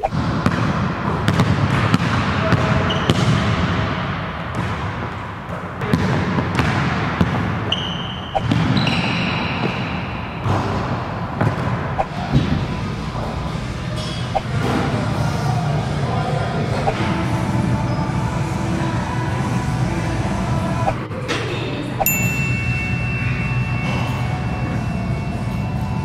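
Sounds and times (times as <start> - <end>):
basketball bouncing on wooden floor: 0.1 - 3.6, 4.5 - 5.1, 5.8 - 7.5
busy background: 0.9 - 26.0
shoe squeaks: 2.8 - 3.3, 7.7 - 10.1.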